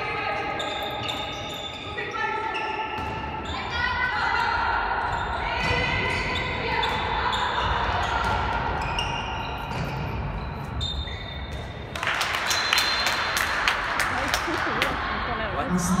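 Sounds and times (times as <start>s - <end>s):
shoes squeaking on court: 0.2s - 3.7s, 6.1s - 13.1s.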